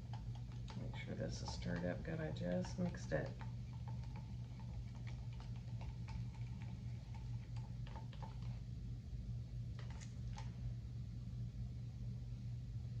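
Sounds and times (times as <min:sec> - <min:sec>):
steady low hum: 0:00.0 - 0:13.0
stick tapping plastic cup: 0:00.1 - 0:08.5.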